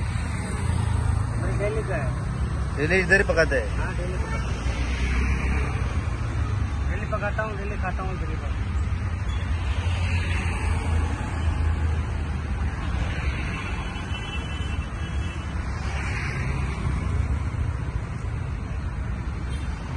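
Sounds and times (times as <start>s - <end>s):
traffic rumble: 0.0s - 19.9s
vehicles passing: 0.0s - 19.9s.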